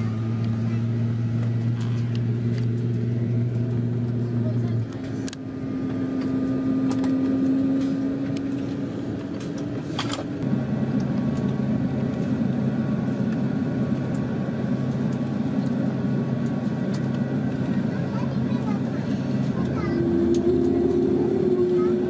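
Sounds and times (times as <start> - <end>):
jet engine whine and drone: 0.0 - 22.0.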